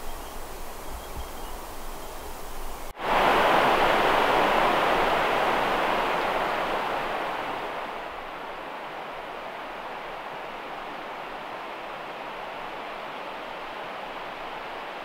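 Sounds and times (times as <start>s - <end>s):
rushing noise: 1.6s - 10.3s.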